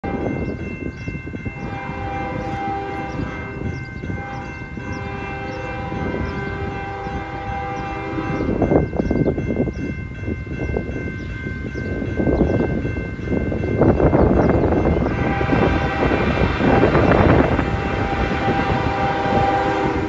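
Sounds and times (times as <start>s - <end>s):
crossing warning bells: 0.0s - 20.0s
train rushing and rumbling: 0.0s - 20.0s
train horn blasts: 1.5s - 8.8s, 14.9s - 20.0s.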